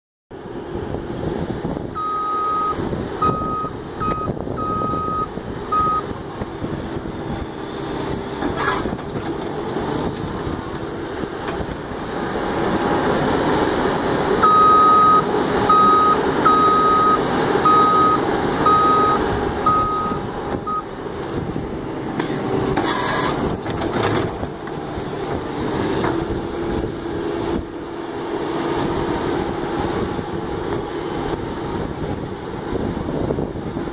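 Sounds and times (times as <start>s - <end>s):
diesel engine under load: 0.3s - 33.9s
backup alarm beeping: 2.0s - 6.1s, 14.4s - 20.9s.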